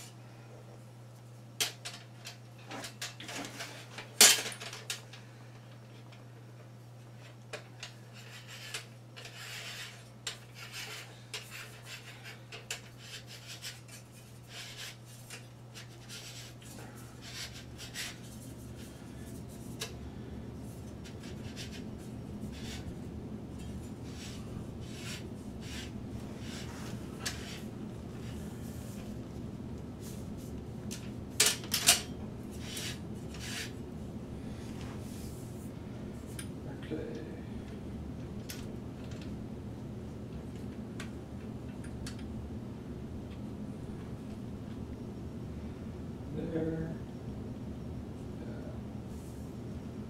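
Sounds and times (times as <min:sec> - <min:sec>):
steady low hum: 0:00.0 - 0:50.0
rubbing scraping and clicks: 0:23.6 - 0:29.1.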